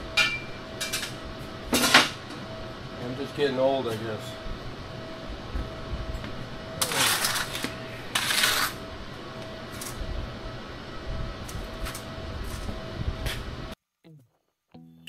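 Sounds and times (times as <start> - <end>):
rustling scraping noise: 6.8 - 8.8.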